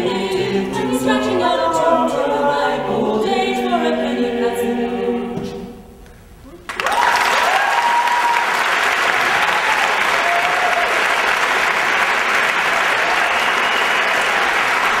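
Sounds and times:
audience applauding: 0:06.7 - 0:15.0.

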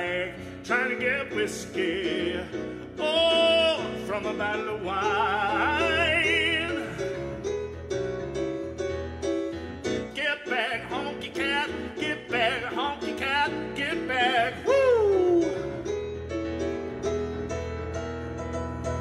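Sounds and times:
man singing ad-lib notes: 0:00.0 - 0:07.2, 0:10.0 - 0:15.9
piano chords: 0:00.0 - 0:19.0.

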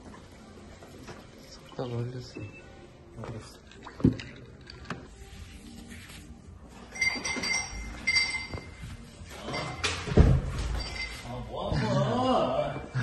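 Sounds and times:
ice clinking in a glass: 0:06.9 - 0:08.7.

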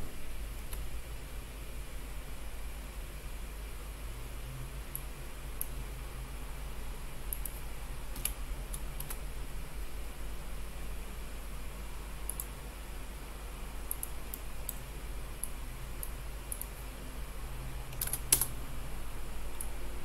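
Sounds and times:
low steady hum: 0:00.0 - 0:20.0
keyboard and mouse clicking: 0:07.3 - 0:09.2, 0:12.3 - 0:12.5, 0:13.9 - 0:14.8, 0:15.4 - 0:16.8, 0:17.9 - 0:18.6.

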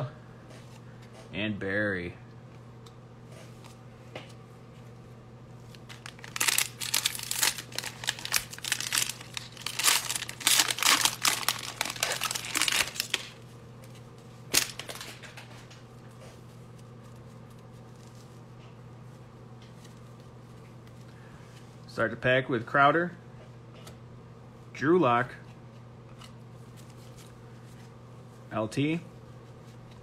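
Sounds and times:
steady low hum: 0:00.0 - 0:30.0
foil wrapper crinkling: 0:05.6 - 0:13.4, 0:14.5 - 0:15.3.

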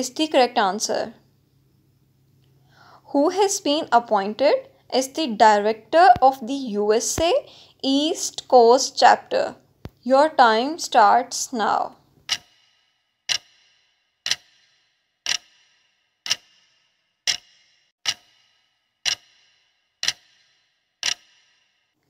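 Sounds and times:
clock ticking with metallic ring: 0:12.2 - 0:21.9.

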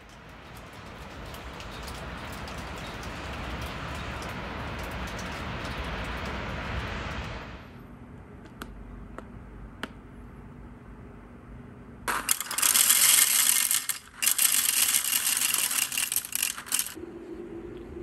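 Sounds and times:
coffee beans pouring rattle: 0:12.1 - 0:17.0
grinder low hum: 0:12.1 - 0:18.0.

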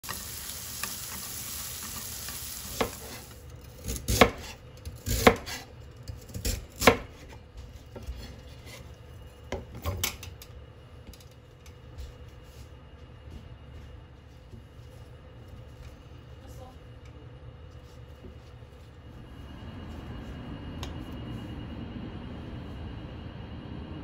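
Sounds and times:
steady hiss: 0:00.0 - 0:03.4
knife chopping on cutting board: 0:02.7 - 0:03.2, 0:03.8 - 0:05.6, 0:06.4 - 0:07.3.

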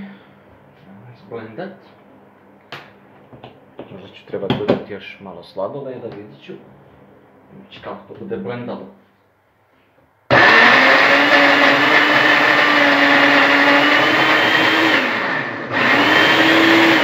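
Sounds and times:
blender running on thick mix: 0:10.3 - 0:17.0.

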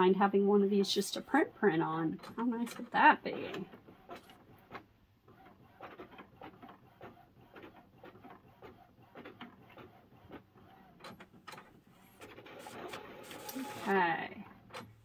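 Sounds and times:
printer whirr: 0:00.6 - 0:15.0
printer mechanical strokes: 0:02.1 - 0:14.0.

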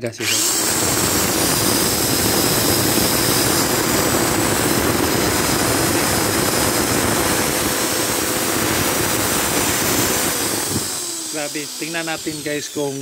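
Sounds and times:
drill running with no load: 0:00.0 - 0:13.0.

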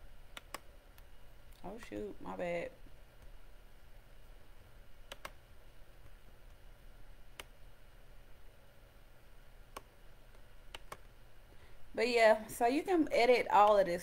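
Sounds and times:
faint low hum: 0:00.0 - 0:14.0
computer mouse clicking: 0:00.3 - 0:01.1, 0:05.1 - 0:05.4, 0:07.3 - 0:07.6, 0:09.7 - 0:11.1.

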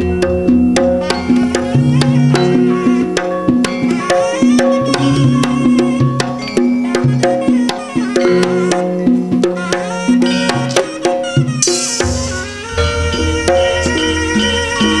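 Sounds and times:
hand drum strokes: 0:00.0 - 0:15.0
wavering melody line: 0:00.0 - 0:15.0
sustained pitched tones: 0:11.6 - 0:15.0.

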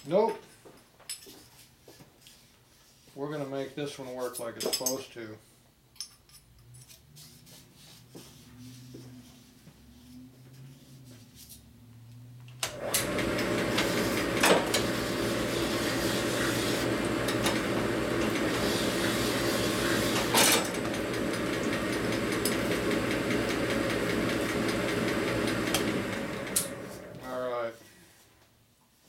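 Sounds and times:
machine tool motor humming: 0:12.6 - 0:27.2.

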